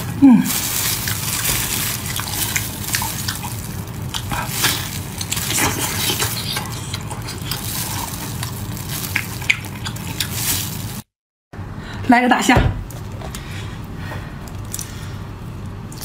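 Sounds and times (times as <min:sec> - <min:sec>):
wet chewing and squelching: 0:00.5 - 0:11.1, 0:14.4 - 0:16.0.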